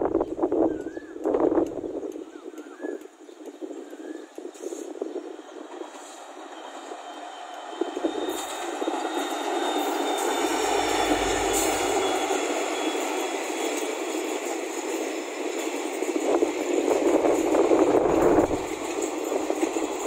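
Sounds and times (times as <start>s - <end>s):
train wheels clattering on track: 0.7s - 20.0s
diesel locomotive engine rumble: 4.4s - 20.0s.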